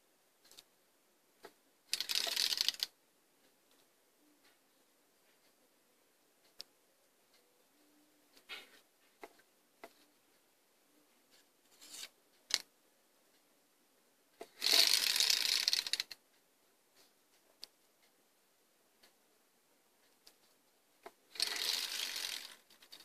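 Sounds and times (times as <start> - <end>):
prize wheel clicking: 1.9 - 2.9, 14.4 - 16.2, 21.3 - 23.0.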